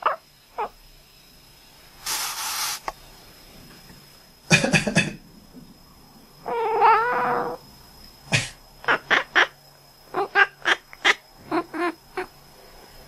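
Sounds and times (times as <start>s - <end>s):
cat mewing: 6.5s - 7.6s.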